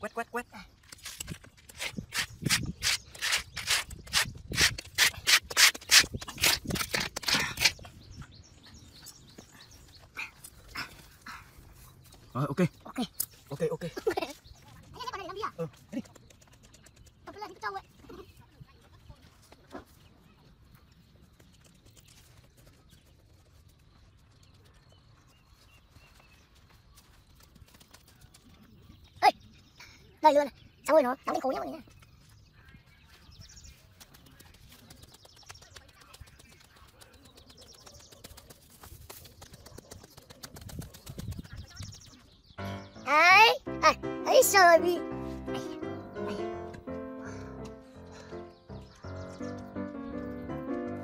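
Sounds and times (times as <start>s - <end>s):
soil being scraped: 0.9s - 8.0s.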